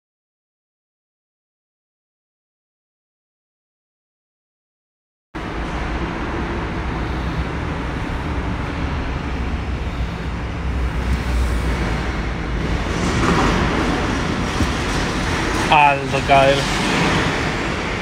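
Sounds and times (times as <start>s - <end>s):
rush of noise: 5.4s - 18.0s
van engine and road rumble: 5.4s - 18.0s.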